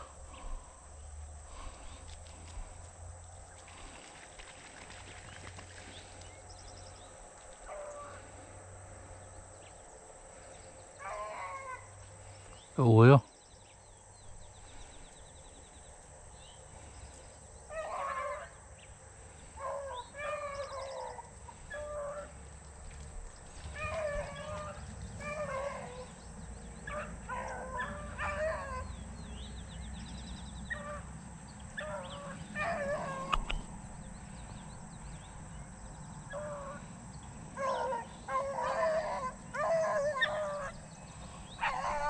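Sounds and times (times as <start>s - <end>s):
dogs baying: 11.0s - 11.9s, 17.7s - 18.6s, 19.5s - 22.4s, 23.5s - 29.5s, 30.6s - 33.7s, 37.5s - 42.0s.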